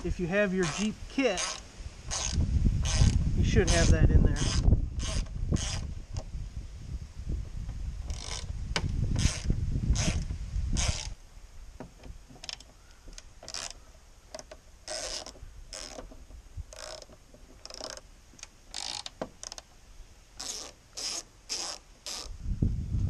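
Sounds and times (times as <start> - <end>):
ratchet pawl clicking: 16.7 - 19.6.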